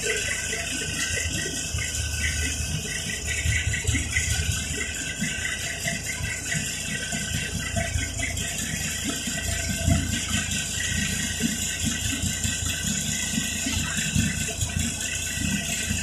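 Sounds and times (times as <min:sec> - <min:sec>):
bus diesel engine running: 0:00.0 - 0:16.0.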